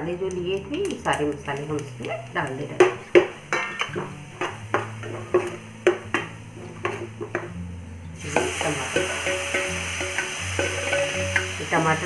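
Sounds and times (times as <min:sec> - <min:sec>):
food sizzling: 0:00.0 - 0:12.0
spoon scraping a pan: 0:02.8 - 0:07.6, 0:08.2 - 0:12.0.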